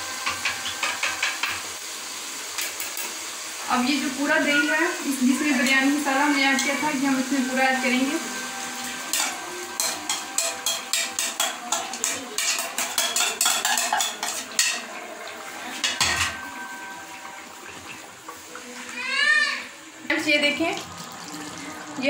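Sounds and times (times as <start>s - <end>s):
spatula stirring pot: 9.1s - 14.9s.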